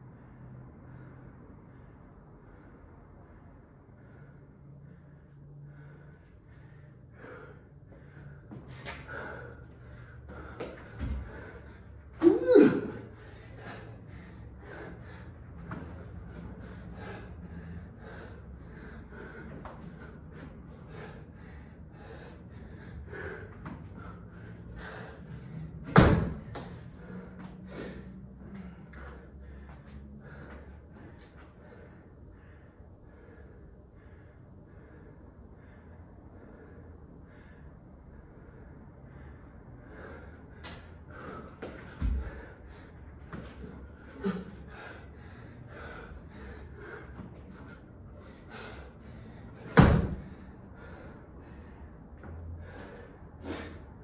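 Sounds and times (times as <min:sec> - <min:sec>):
person breathing hard: 0:00.0 - 0:54.0
loud thump: 0:49.7 - 0:50.3.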